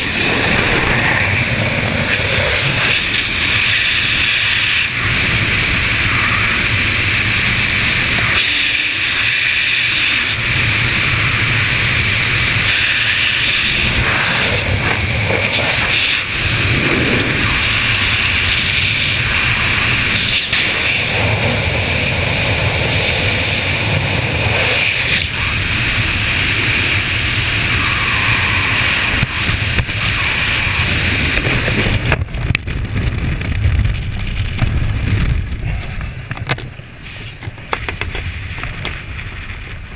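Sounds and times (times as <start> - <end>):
wind roaring over microphone: 0.0 - 39.9.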